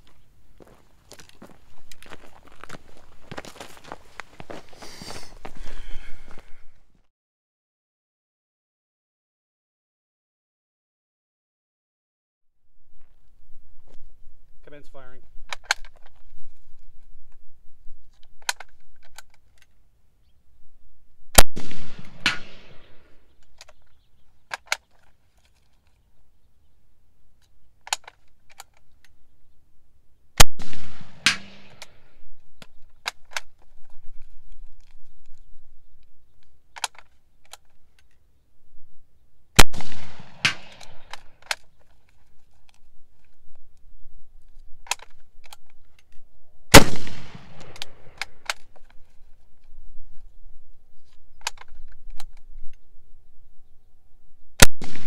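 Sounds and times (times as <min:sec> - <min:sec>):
rifle shots echoing: 0:21.4 - 0:23.2, 0:30.4 - 0:32.1, 0:39.6 - 0:41.3, 0:46.7 - 0:48.4, 0:54.6 - 0:55.0.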